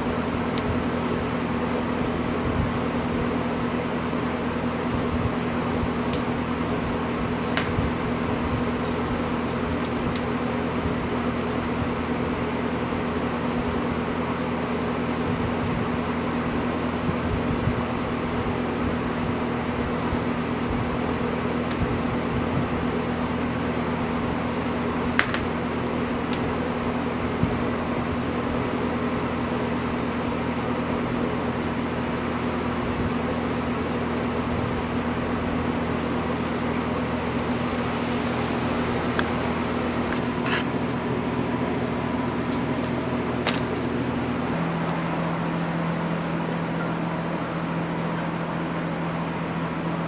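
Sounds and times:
motor humming: 0:32.5 - 0:50.0.

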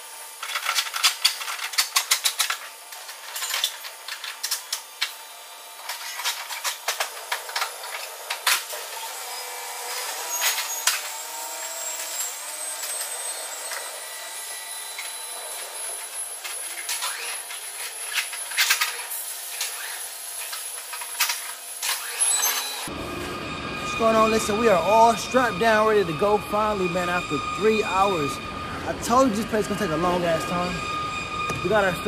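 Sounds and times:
steady machinery noise: 0:00.0 - 0:32.0.

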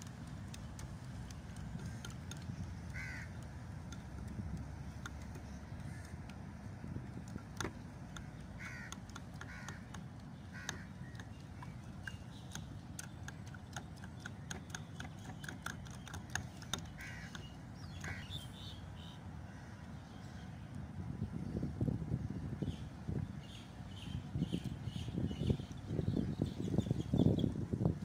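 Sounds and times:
steady low rumble: 0:00.0 - 0:15.0
crows cawing: 0:02.9 - 0:03.4, 0:08.6 - 0:11.0, 0:17.0 - 0:17.4.

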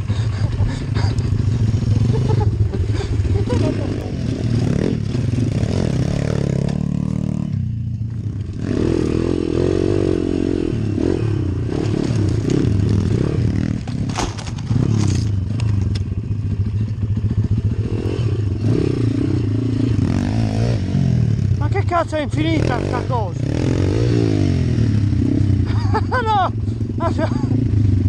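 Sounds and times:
motorbike engine revving: 0:00.0 - 0:28.0
bike clattering over stones: 0:11.8 - 0:16.1.

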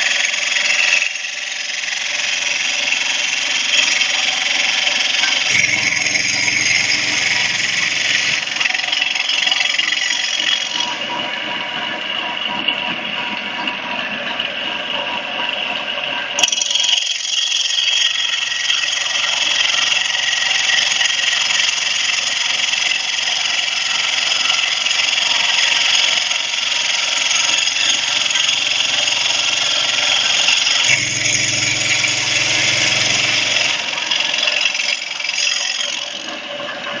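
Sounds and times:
router spindle grinding stone: 0:00.0 - 0:10.8, 0:16.5 - 0:36.6
low hum: 0:05.5 - 0:08.6, 0:27.9 - 0:34.1.

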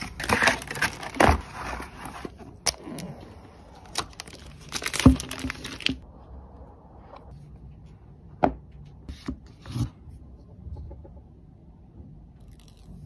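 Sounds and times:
plastic wrap crinkling: 0:03.8 - 0:06.0.

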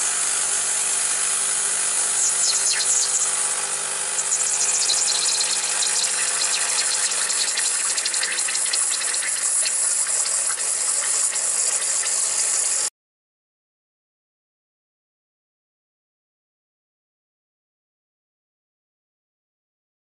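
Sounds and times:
espresso machine pump buzzing: 0:00.0 - 0:12.9
water hissing through machine: 0:00.0 - 0:12.9.

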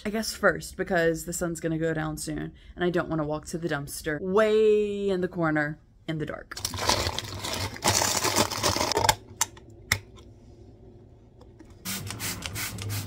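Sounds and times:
plastic freezer bags crinkling: 0:06.6 - 0:09.4.

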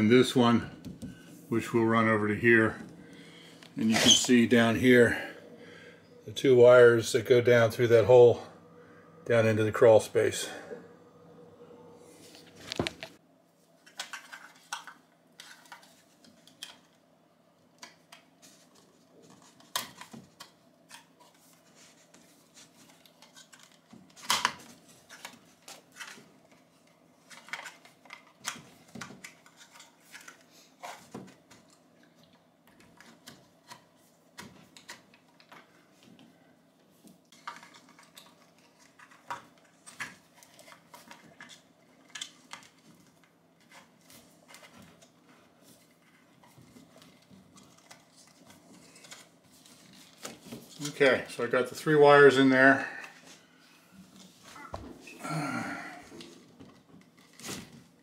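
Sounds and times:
cables clicking rustling and knocking: 0:17.8 - 0:51.0.

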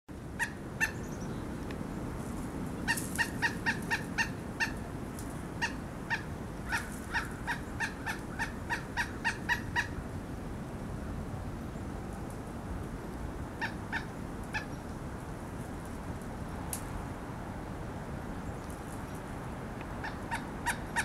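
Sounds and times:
woodpecker calling: 0:00.4 - 0:01.3, 0:02.9 - 0:04.8, 0:05.6 - 0:10.0, 0:20.0 - 0:21.0.

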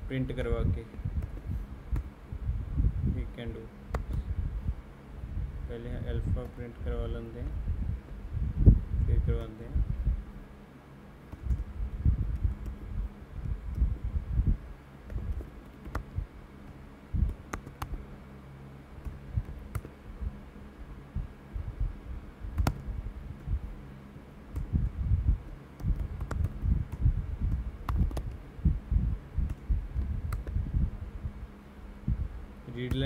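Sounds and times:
computer keyboard typing: 0:15.1 - 0:18.0, 0:19.0 - 0:19.9, 0:25.8 - 0:28.4.

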